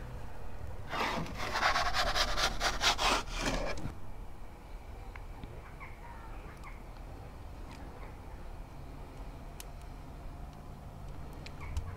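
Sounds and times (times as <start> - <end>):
wooden peel scraping on stone: 0.9 - 3.9.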